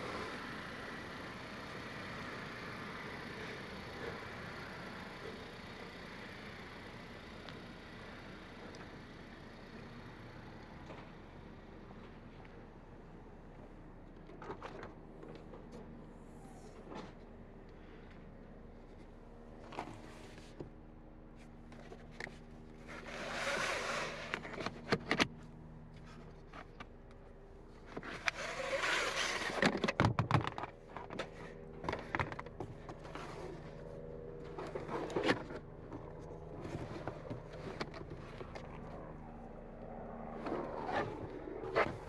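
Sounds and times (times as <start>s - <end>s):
steady low hum: 0.0s - 42.0s
rustling and scraping: 21.4s - 25.2s, 27.9s - 38.8s.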